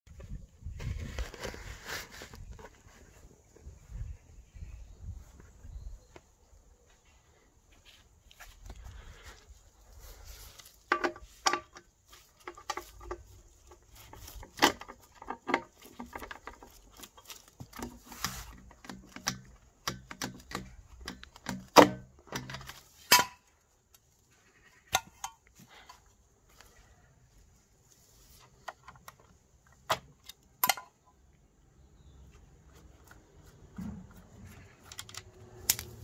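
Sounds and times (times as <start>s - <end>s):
leaves and twigs rustling and snapping: 11.4s - 21.5s, 34.8s - 36.0s.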